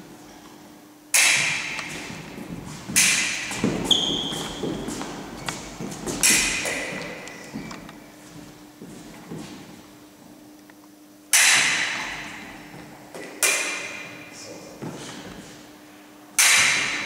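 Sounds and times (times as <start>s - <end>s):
fencing blades clashing: 1.1s - 8.1s, 11.3s - 15.4s, 16.4s - 17.0s
footwork thudding on wooden floor: 1.4s - 9.7s.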